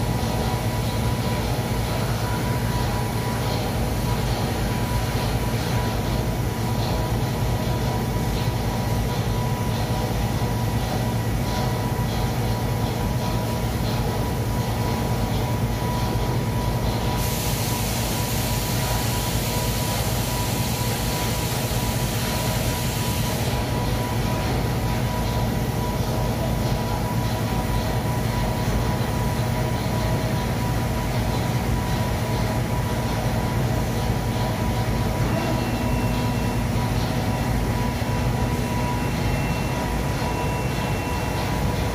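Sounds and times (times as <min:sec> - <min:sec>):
machinery humming and rumbling: 0:00.0 - 0:41.9
loud hiss: 0:17.2 - 0:23.6.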